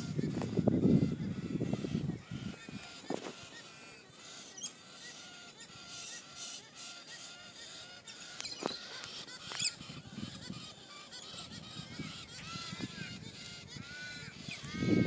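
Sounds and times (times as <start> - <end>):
flock of galahs calling: 0.0 - 15.0.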